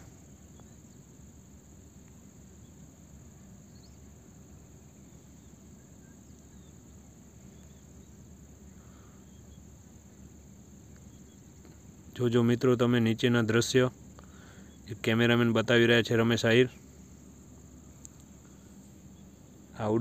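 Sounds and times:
cable car low rumble: 0.0s - 20.0s
high-pitched hiss: 0.0s - 20.0s.

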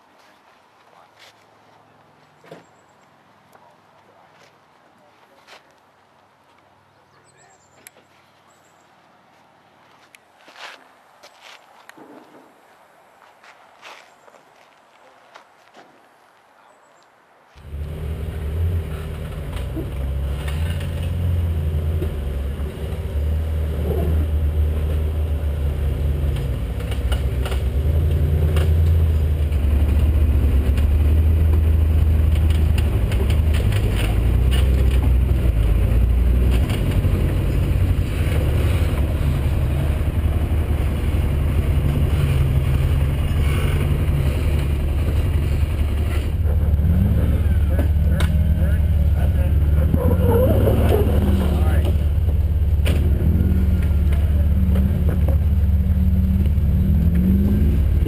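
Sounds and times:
atv engine droning: 17.6s - 58.0s.

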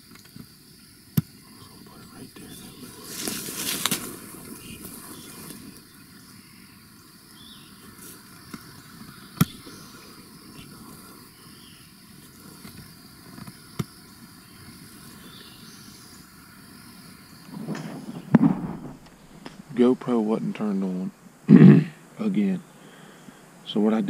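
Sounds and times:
insects chirping: 0.0s - 24.0s
air rifle shots: 17.6s - 19.7s.

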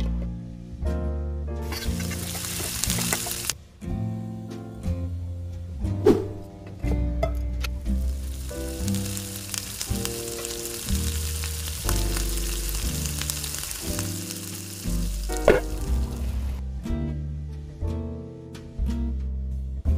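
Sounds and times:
background music: 0.0s - 19.9s
butter and oil sizzling in a pan: 1.6s - 3.6s, 7.8s - 16.6s.

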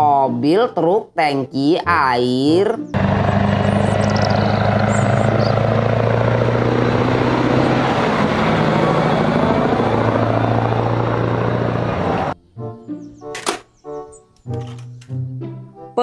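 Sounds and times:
road noise: 2.6s - 15.6s
truck diesel engine driving past: 2.9s - 12.4s.

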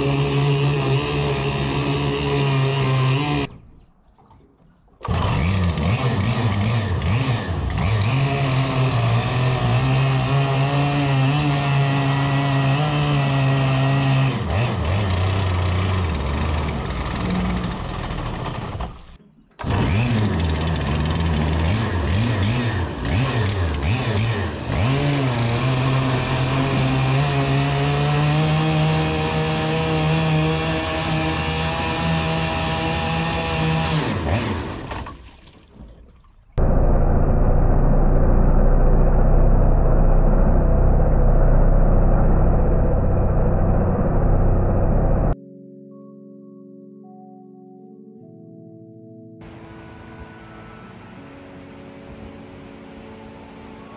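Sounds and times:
propeller churning water: 0.0s - 10.2s, 13.8s - 37.7s
two-stroke engine running: 5.0s - 35.0s.

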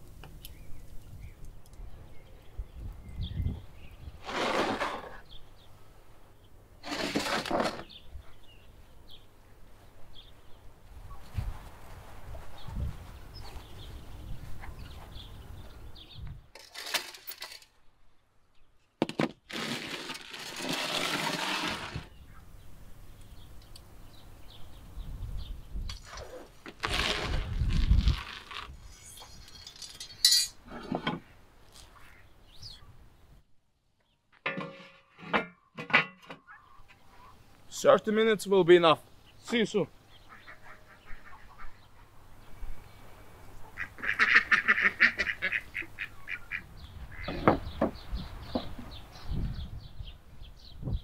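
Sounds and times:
metal trays scraping on brick: 4.2s - 5.4s, 6.8s - 8.0s, 16.6s - 17.6s, 19.5s - 22.1s, 29.0s - 31.2s, 34.5s - 36.4s
metal trays clinking: 29.4s - 30.6s.

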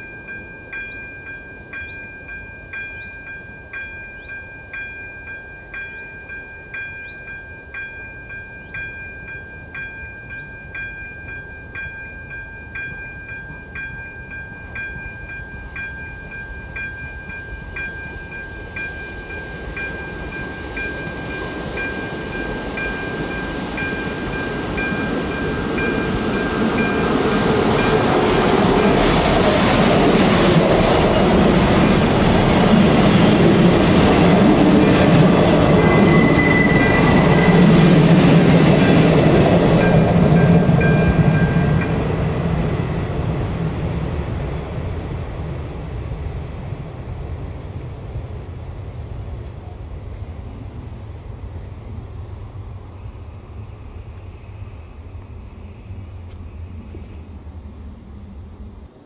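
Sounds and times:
level crossing warning bell: 0.0s - 42.9s
diesel railcar passing: 0.0s - 59.0s.

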